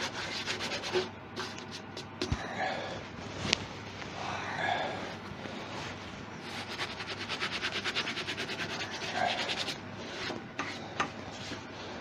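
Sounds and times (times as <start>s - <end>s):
hand rubbing wood rhythmically: 0.0s - 2.3s, 6.5s - 9.8s.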